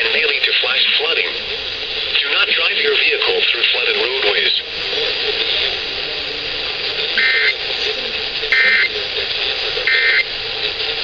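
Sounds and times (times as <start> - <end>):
steady hiss: 0.0 - 11.0
data tone bursts: 7.2 - 7.6, 8.5 - 9.0, 9.9 - 10.3.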